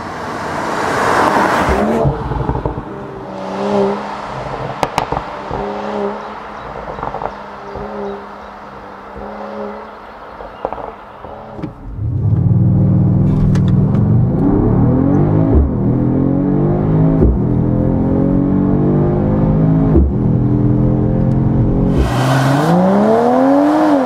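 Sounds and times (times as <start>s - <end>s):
car engine accelerating hard: 0.0s - 24.0s
gear shift thump: 17.1s - 17.7s.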